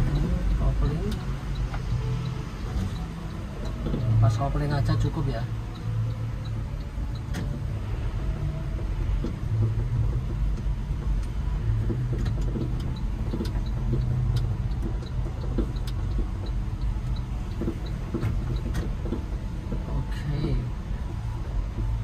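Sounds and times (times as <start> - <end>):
truck engine low rumble: 0.0 - 22.0
faint light ticks: 5.0 - 7.6, 9.2 - 22.0.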